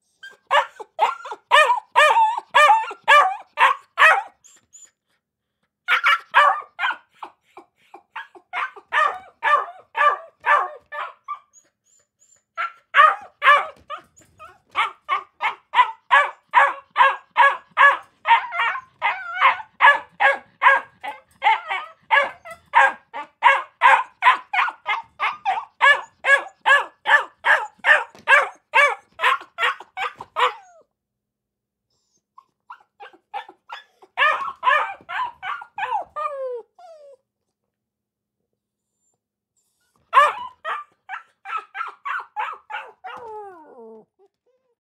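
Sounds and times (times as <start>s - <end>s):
dog barking: 0.5s - 4.4s, 5.9s - 7.2s, 8.2s - 11.4s, 12.6s - 14.0s, 14.7s - 30.6s, 33.0s - 36.0s, 40.1s - 43.3s.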